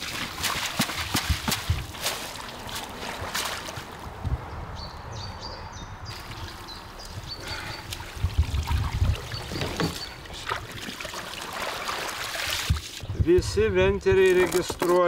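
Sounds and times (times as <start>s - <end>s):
water splashing and sloshing: 0.0s - 4.4s, 6.1s - 13.1s.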